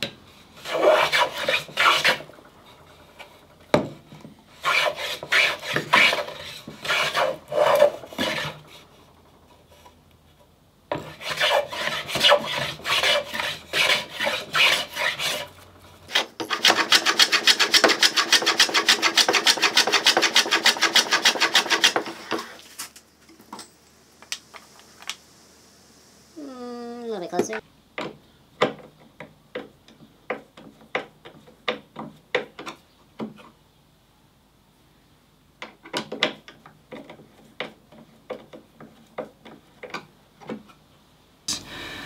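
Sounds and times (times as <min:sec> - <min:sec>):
hand plane shaving wood: 0:00.6 - 0:02.3, 0:04.5 - 0:08.8, 0:10.9 - 0:22.6.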